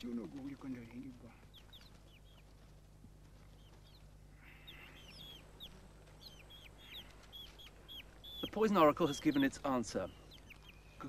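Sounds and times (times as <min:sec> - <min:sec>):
chicks peeping: 0:00.0 - 0:11.0
faint low hum: 0:00.0 - 0:11.0.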